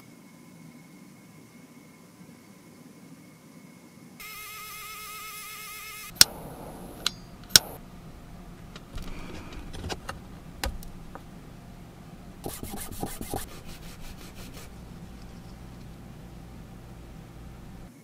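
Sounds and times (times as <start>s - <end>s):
light ticks and scrapes: 8.6s - 11.4s, 12.4s - 17.9s
needle file rasping: 12.4s - 17.8s.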